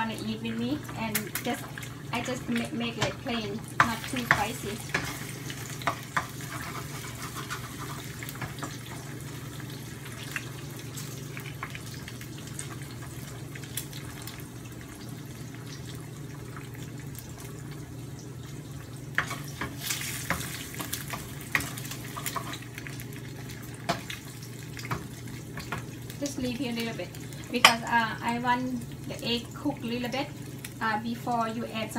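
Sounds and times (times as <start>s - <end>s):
eggs sizzling in oil: 0.0s - 31.9s
spatula scraping and tapping pan: 3.8s - 9.0s.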